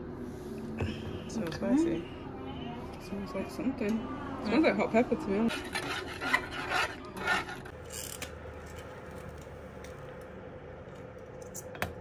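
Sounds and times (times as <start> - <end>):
utensil scraping metal saucepan: 5.4 - 7.8.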